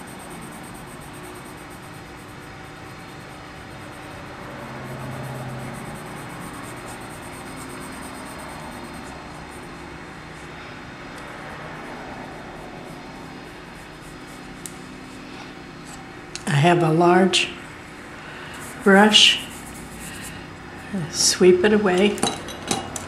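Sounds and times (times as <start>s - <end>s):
low mechanical drone: 0.0s - 17.0s.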